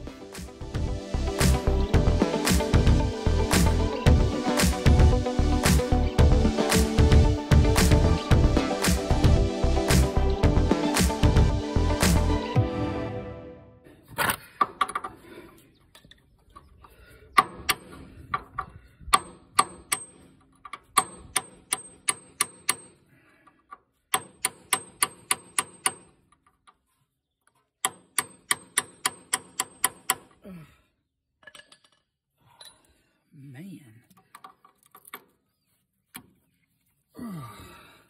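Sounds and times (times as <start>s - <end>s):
hammer striking metal chisel: 19.2s - 23.0s, 24.1s - 26.2s, 27.8s - 30.4s.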